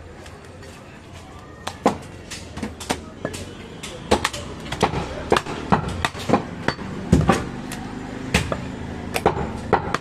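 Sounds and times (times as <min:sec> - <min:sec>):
chopper chopping meat and bone: 0:02.6 - 0:10.0.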